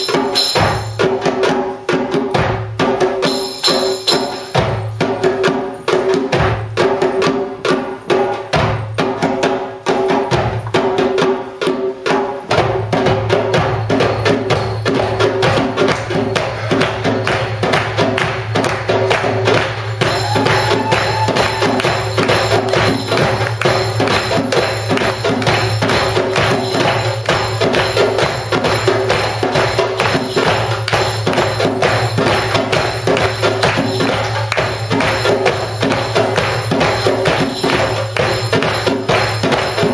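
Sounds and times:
tambourine: 0:00.0 - 0:01.2, 0:03.2 - 0:06.2, 0:13.6 - 0:17.8, 0:18.5 - 0:39.9
hand drums playing: 0:00.0 - 0:39.9.

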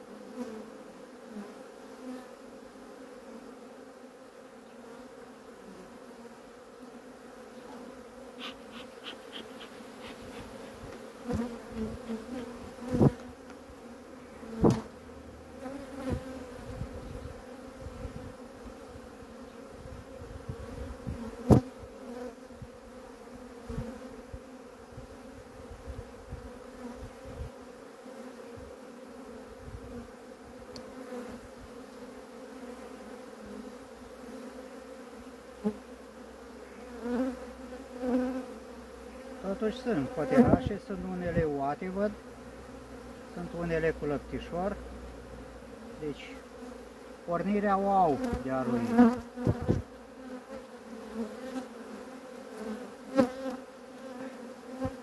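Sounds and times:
honeybees humming: 0:00.0 - 0:55.0.

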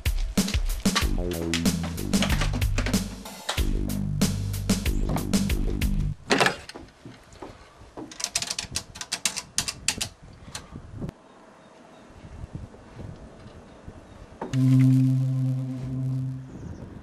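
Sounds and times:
drum kit music: 0:00.0 - 0:06.2, 0:14.6 - 0:16.5.

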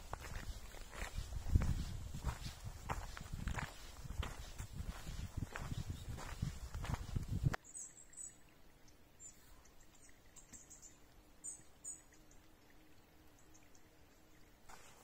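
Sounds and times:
footsteps crunching on trail: 0:00.0 - 0:07.6, 0:14.7 - 0:15.0
small birds chirping: 0:00.0 - 0:15.0
faint steady hum: 0:06.2 - 0:15.0.

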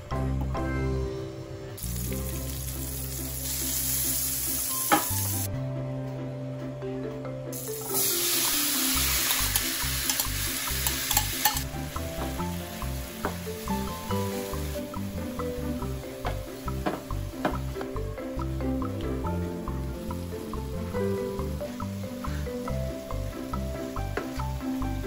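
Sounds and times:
butter sizzling in frying pan: 0:01.8 - 0:05.5, 0:07.6 - 0:17.9
apples frying and clicking: 0:07.6 - 0:25.0.

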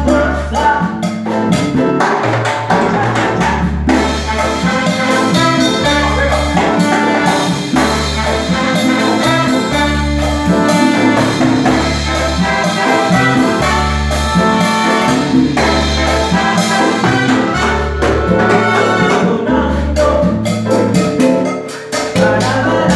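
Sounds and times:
bass guitar: 0:00.0 - 0:22.9
congas: 0:00.0 - 0:22.9
drum kit: 0:00.0 - 0:22.9
keyboard: 0:00.0 - 0:22.9
trumpets and trombone: 0:02.8 - 0:19.8.

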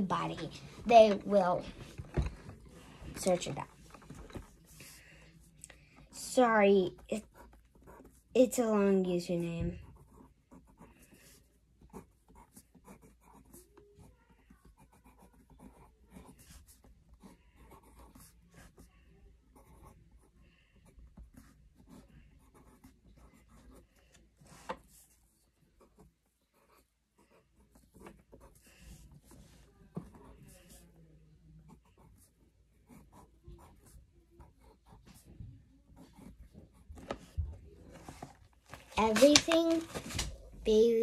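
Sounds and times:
pen writing on paper: 0:09.8 - 0:31.0, 0:31.6 - 0:35.4, 0:36.0 - 0:37.3.

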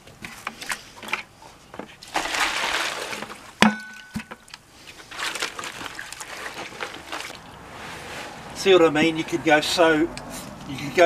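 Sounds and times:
hands mixing wet concrete: 0:00.2 - 0:11.0
water poured from bucket: 0:02.0 - 0:03.6, 0:04.8 - 0:07.6.

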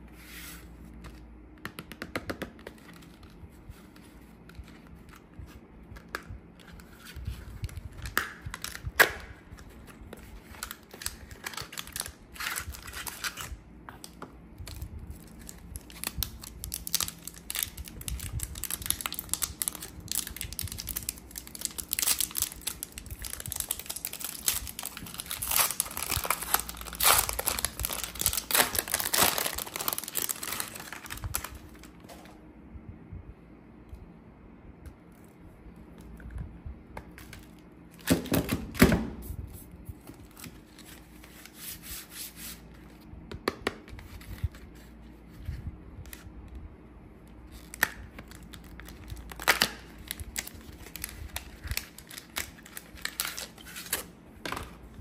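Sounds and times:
wrapper crinkling and rustling: 0:10.4 - 0:13.5, 0:14.7 - 0:32.0, 0:47.4 - 0:54.1
wrapper tearing open: 0:14.7 - 0:31.9, 0:47.5 - 0:54.1.

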